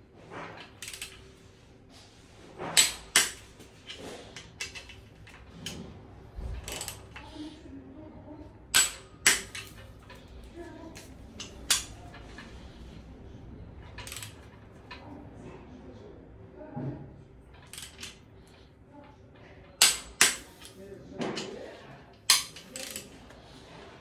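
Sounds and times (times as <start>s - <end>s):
wrench ratcheting: 0.6s - 1.2s, 2.8s - 5.8s, 6.6s - 7.3s, 8.7s - 10.3s, 10.9s - 12.7s, 13.8s - 15.0s, 17.6s - 18.6s, 19.7s - 20.8s, 22.2s - 23.1s
torque wrench clicking: 19.8s - 20.8s, 22.2s - 23.1s.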